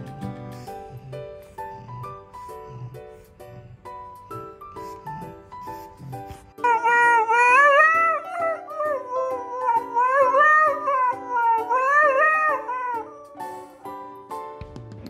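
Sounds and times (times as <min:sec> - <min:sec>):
dog howling: 0:00.7 - 0:14.0
background music with beat: 0:13.6 - 0:15.0.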